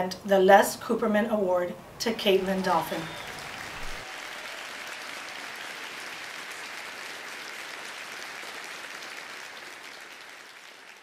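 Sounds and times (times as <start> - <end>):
crowd applauding: 2.3 - 11.0.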